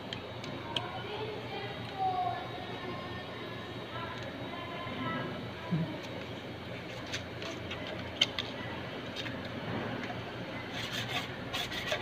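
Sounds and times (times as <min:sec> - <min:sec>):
steady background hum: 0:00.0 - 0:12.0.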